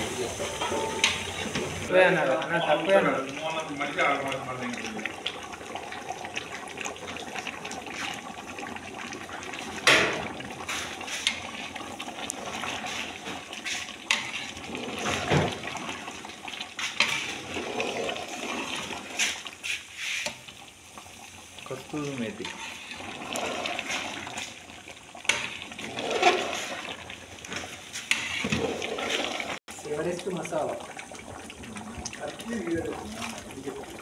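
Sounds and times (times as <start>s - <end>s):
water splashing into a pot: 0.0s - 34.0s.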